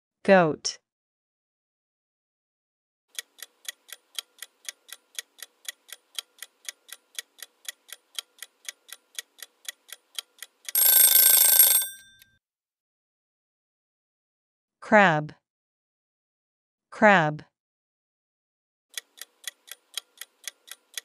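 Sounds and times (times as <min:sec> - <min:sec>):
clock ticking: 0:03.1 - 0:11.9, 0:18.9 - 0:21.0
loud bell ringing: 0:10.8 - 0:12.2.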